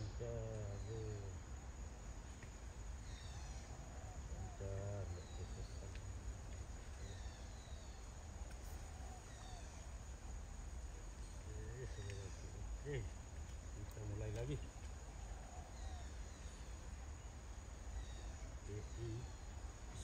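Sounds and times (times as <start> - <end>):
insects chirping: 0.0 - 20.0.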